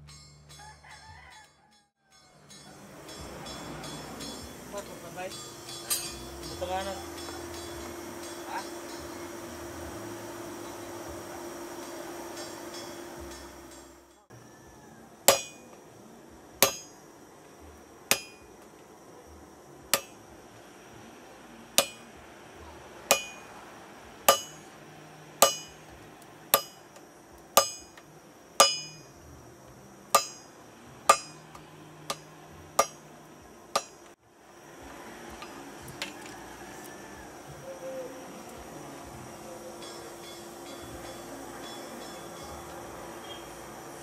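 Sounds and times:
hammer striking metal: 0:02.1 - 0:14.3, 0:15.3 - 0:15.9, 0:16.6 - 0:17.1, 0:18.1 - 0:18.6, 0:19.9 - 0:20.2, 0:21.8 - 0:22.2, 0:23.1 - 0:23.6, 0:24.3 - 0:24.8, 0:25.4 - 0:29.2, 0:30.1 - 0:34.2, 0:39.6 - 0:43.8
forge hissing: 0:02.5 - 0:44.0.

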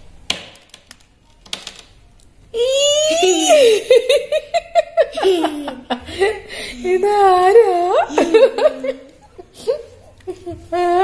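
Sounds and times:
girl giggling: 0:02.6 - 0:07.0, 0:08.1 - 0:11.0.

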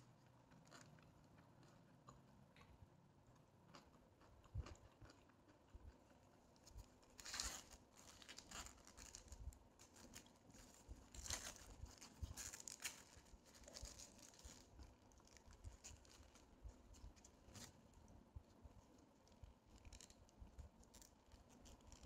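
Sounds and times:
paper wrapper crinkling and tearing: 0:06.6 - 0:17.8, 0:19.3 - 0:22.0.

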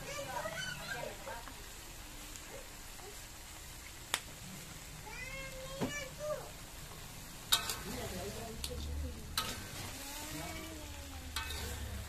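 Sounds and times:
light sizzle: 0:00.0 - 0:12.0
metal spatula scraping a wok: 0:07.5 - 0:08.4, 0:09.1 - 0:12.0.

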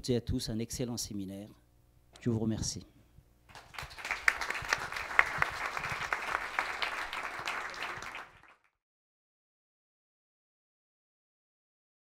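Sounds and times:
audience applauding: 0:03.5 - 0:08.7.

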